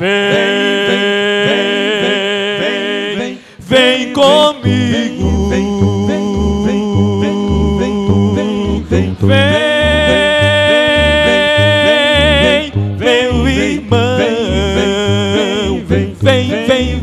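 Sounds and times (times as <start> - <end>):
male vocal quartet singing gospel: 0.0 - 17.0
pulsing bass accompaniment: 4.6 - 17.0.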